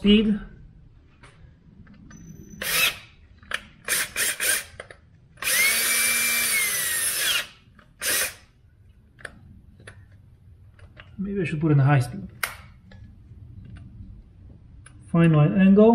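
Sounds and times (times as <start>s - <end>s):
cordless drill drilling metal: 2.6s - 3.1s, 3.8s - 4.8s, 5.4s - 8.5s.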